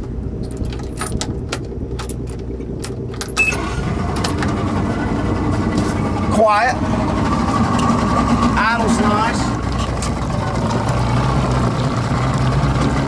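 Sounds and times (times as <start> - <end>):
outboard motor idling: 0.0 - 13.0
short beep: 3.4 - 3.7.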